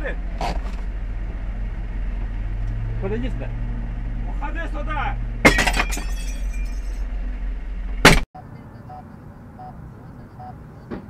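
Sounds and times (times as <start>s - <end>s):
car road noise: 0.0s - 11.0s
loud smash with ringing clatter: 5.4s - 7.0s
sharp bang: 8.0s - 8.2s.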